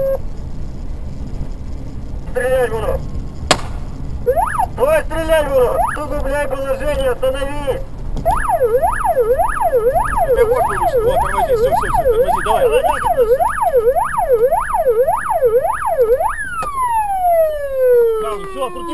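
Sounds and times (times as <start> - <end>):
engine and road rumble: 0.0 - 18.9
police siren yelping: 4.2 - 4.9, 5.5 - 6.2, 8.2 - 18.9.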